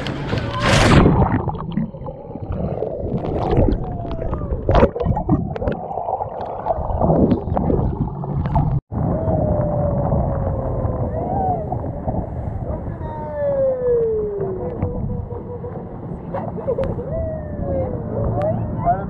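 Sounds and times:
underwater bubbling and gurgling: 0:00.0 - 0:13.1
boat running through choppy sea: 0:08.2 - 0:19.0.

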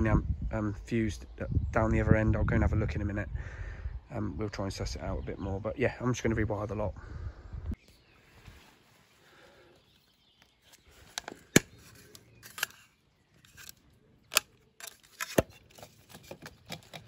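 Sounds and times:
sharp plastic clicks: 0:11.1 - 0:17.0.

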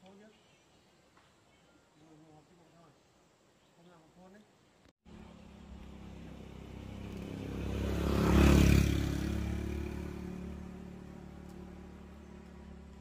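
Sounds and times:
vehicle passing on road: 0:05.1 - 0:13.0.

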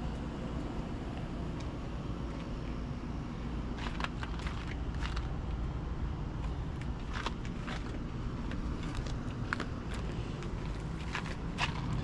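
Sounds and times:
air conditioning units droning: 0:00.0 - 0:12.0
footsteps crunching on gravel: 0:03.7 - 0:05.6, 0:06.4 - 0:12.0.

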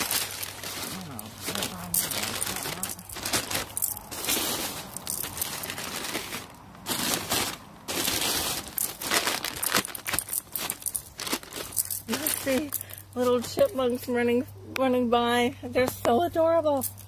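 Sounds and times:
plastic bag crinkling: 0:00.0 - 0:13.8.

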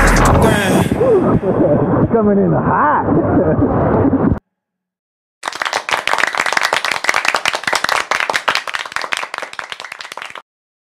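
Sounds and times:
many hands clapping: 0:05.4 - 0:10.4.

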